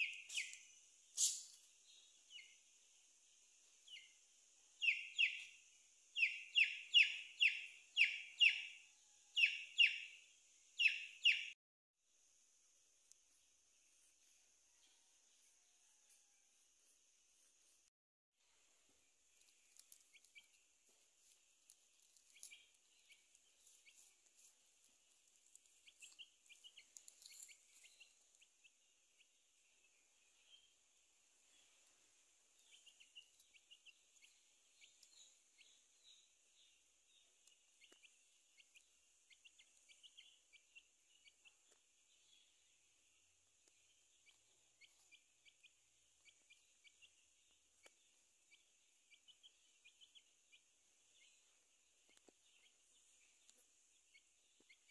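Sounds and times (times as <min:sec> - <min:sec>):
baby chick cheeping: 0:00.0 - 0:02.6, 0:04.8 - 0:11.6, 0:19.4 - 0:20.6, 0:22.0 - 0:24.5, 0:25.2 - 0:29.4, 0:32.6 - 0:42.6, 0:43.6 - 0:54.9.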